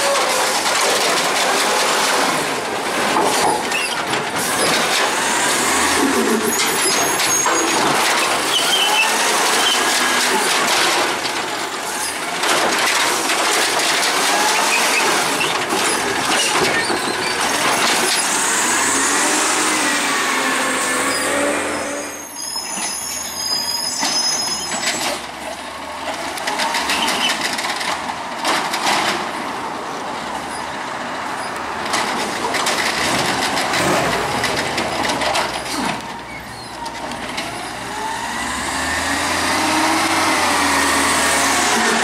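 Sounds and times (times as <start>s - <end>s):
garbage truck engine: 0.0s - 42.0s
brake squeal: 3.4s - 4.8s, 5.9s - 10.6s, 14.3s - 25.2s, 26.9s - 27.4s, 30.4s - 31.7s, 34.9s - 38.2s
engine revving: 18.1s - 22.2s, 37.9s - 42.0s.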